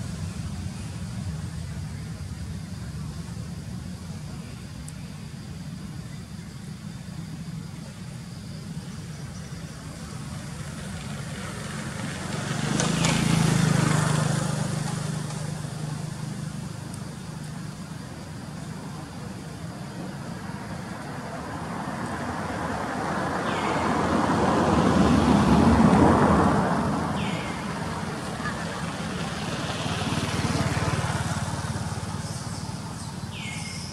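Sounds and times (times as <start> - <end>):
low traffic hum: 0.0 - 33.9
vehicle driving past: 9.9 - 17.3, 21.6 - 33.9.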